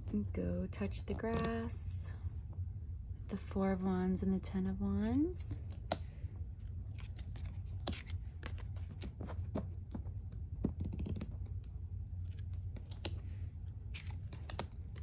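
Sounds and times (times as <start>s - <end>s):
low steady hum: 0.0s - 15.0s
cards sliding rustle: 5.6s - 10.0s, 12.2s - 15.0s
cards clicking on a tabletop: 10.6s - 11.5s, 12.3s - 13.3s, 14.0s - 15.0s.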